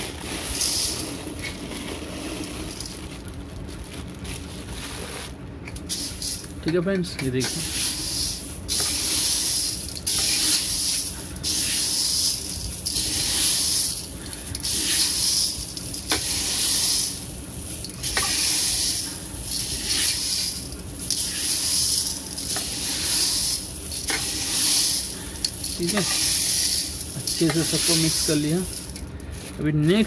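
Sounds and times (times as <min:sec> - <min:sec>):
dry beans stirred in a pot: 0:00.0 - 0:03.4, 0:04.9 - 0:30.0.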